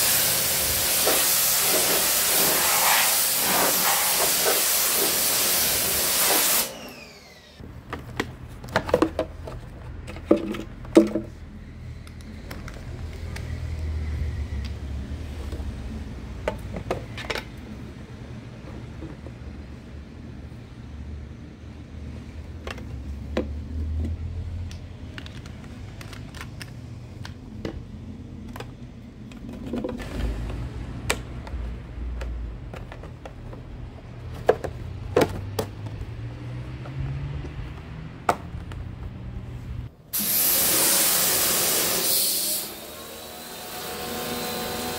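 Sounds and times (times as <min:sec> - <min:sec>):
pressure washer spraying: 0:00.0 - 0:06.8, 0:40.2 - 0:44.9
plastic bottle clicks and knocks: 0:07.9 - 0:11.3, 0:34.3 - 0:36.0.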